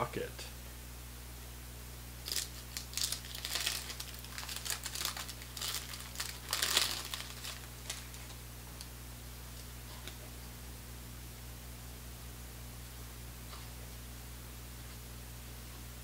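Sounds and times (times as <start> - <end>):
wax-paper wrapper crinkling: 2.2 - 8.9.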